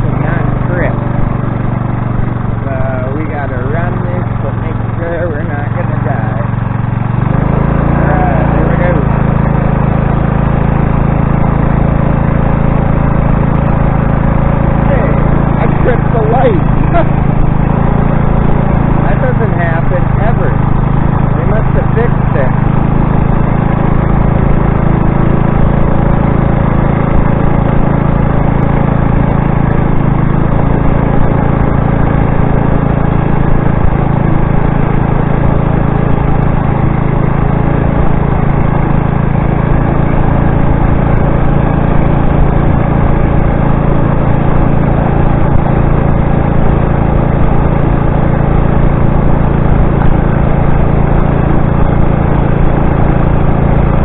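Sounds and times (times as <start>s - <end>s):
motorized bicycle engine running: 0.0s - 54.0s.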